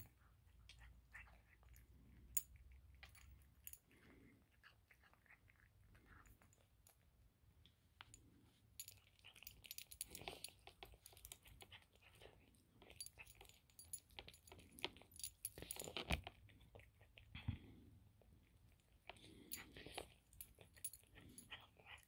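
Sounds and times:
cat crunching food: 0:00.1 - 0:07.2, 0:09.0 - 0:22.0.

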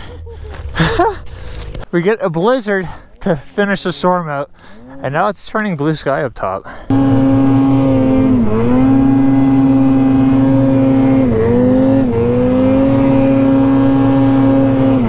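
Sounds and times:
snowmobile engine at high revs: 0:06.9 - 0:15.0.

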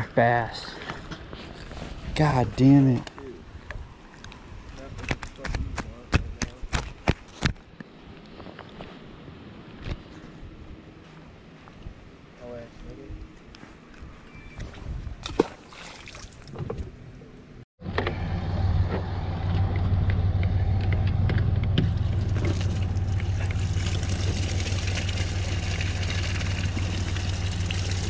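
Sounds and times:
low machine drone: 0:17.8 - 0:28.0.

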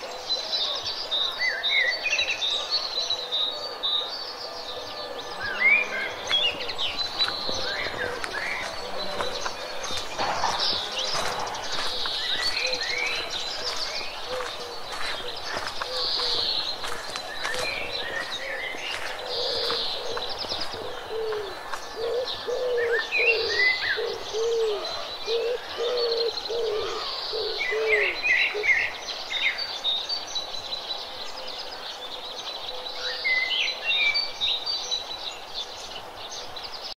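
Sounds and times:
small birds chirping: 0:00.0 - 0:36.9
dove cooing: 0:03.4 - 0:28.7.

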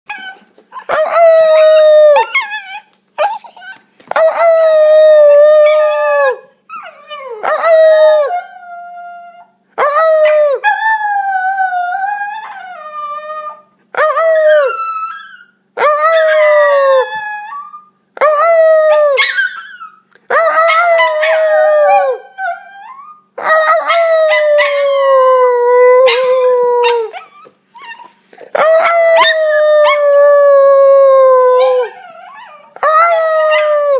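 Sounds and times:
puppy howling: 0:00.1 - 0:33.9.

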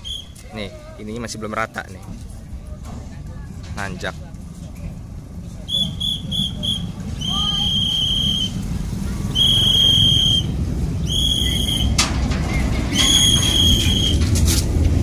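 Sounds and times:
wagons rolling with low rumble: 0:00.0 - 0:15.0
steel wheels squealing: 0:05.6 - 0:08.6, 0:09.2 - 0:14.7.

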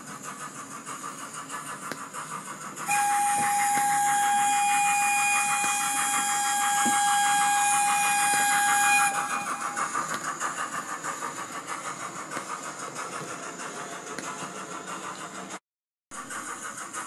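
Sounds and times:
steam hissing: 0:00.0 - 0:15.6, 0:16.2 - 0:17.0
model locomotive chuffing: 0:00.0 - 0:17.0
steam whistle: 0:02.8 - 0:10.2.

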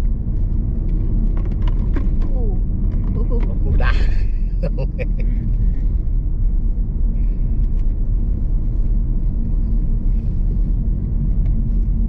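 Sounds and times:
car interior engine and tyre drone: 0:00.0 - 0:12.0.

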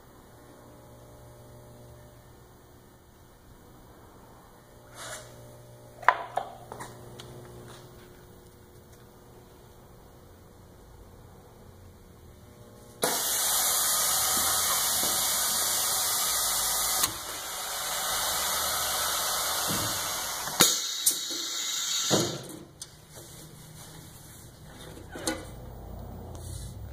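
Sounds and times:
bag sealer hissing: 0:13.0 - 0:22.6.

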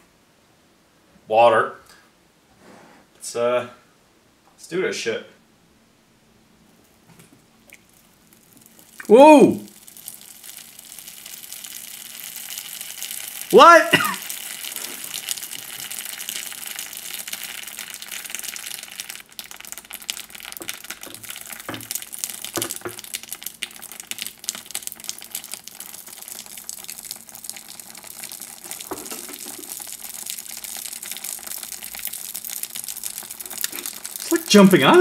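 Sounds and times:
wet beads crackling and fizzing: 0:07.6 - 0:35.0.

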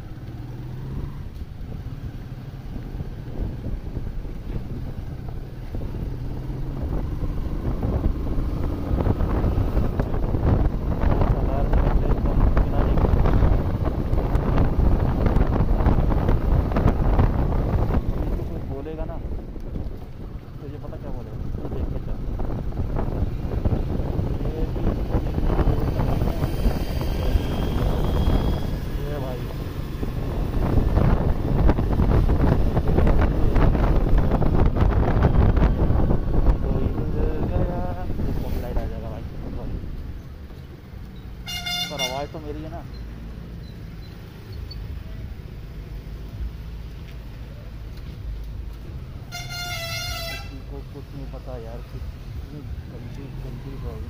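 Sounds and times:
wind buffeting microphone: 0:00.8 - 0:41.0.

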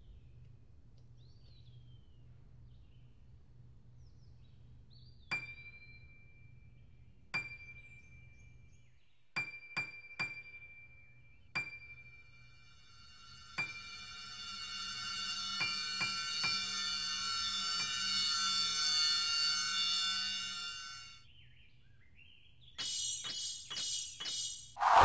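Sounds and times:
low hum: 0:24.8 - 0:25.0.

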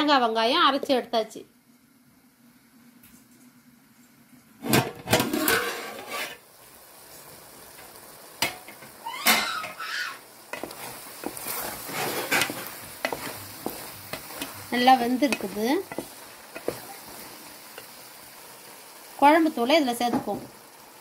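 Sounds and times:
metal pot and utensils clanking: 0:04.6 - 0:06.4, 0:08.4 - 0:09.8, 0:10.5 - 0:18.0
wooden spatula scraping pot: 0:05.2 - 0:06.4, 0:10.5 - 0:18.0.

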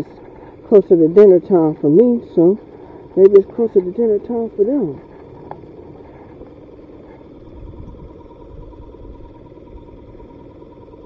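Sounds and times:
aerator pump humming: 0:00.0 - 0:11.0
low rumble: 0:05.0 - 0:10.3.

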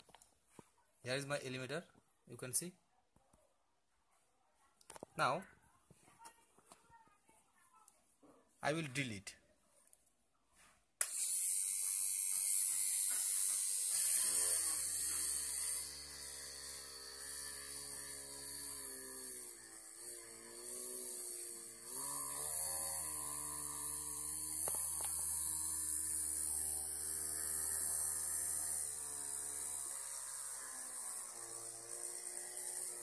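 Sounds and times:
small mini drill motor whine: 0:11.0 - 0:33.0.

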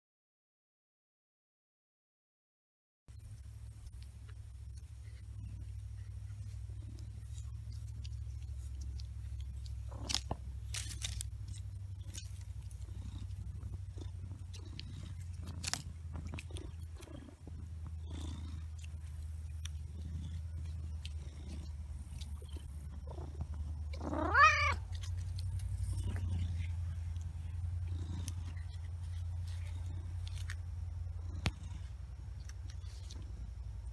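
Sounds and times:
cat purring: 0:03.2 - 0:33.9
cat meowing: 0:22.4 - 0:25.0.

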